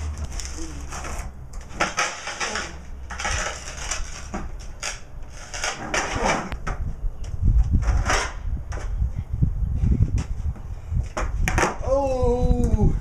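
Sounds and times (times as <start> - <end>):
skateboard scraping on concrete: 0.0 - 6.6, 7.7 - 8.9.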